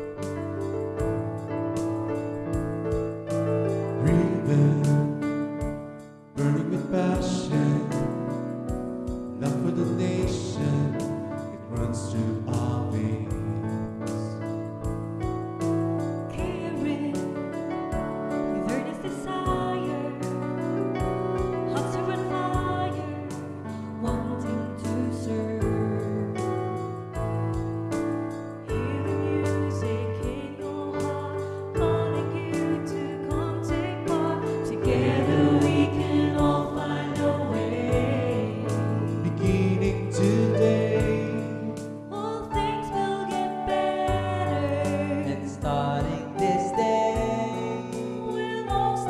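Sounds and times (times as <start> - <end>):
piano accompaniment: 0.0 - 49.0
group singing a hymn: 28.7 - 48.9.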